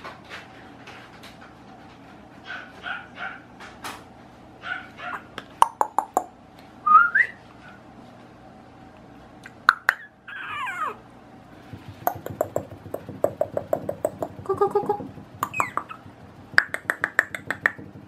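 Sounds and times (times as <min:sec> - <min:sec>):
puppy squeaking and whimpering: 0:04.6 - 0:05.3, 0:09.8 - 0:11.0, 0:14.5 - 0:16.1
puppy whining: 0:04.6 - 0:05.4, 0:09.8 - 0:11.1, 0:14.4 - 0:16.3.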